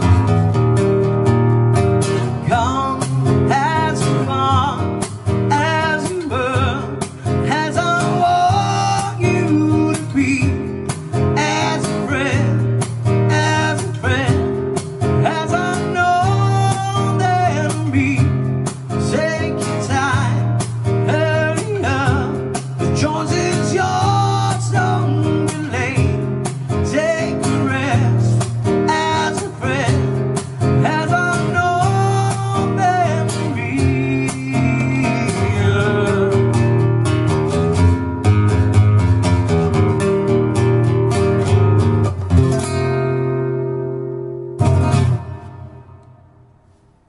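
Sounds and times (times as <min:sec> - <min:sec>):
acoustic guitar strumming: 0:00.0 - 0:47.0
person singing: 0:02.1 - 0:04.9, 0:05.5 - 0:18.4, 0:19.0 - 0:36.9.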